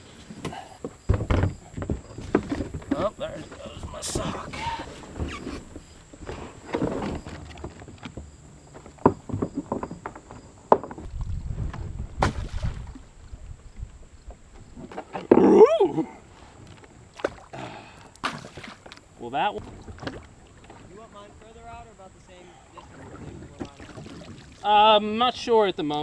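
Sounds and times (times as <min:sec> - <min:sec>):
water moving around boat: 0:00.0 - 0:26.0
plastic decoys knocking: 0:00.4 - 0:04.3.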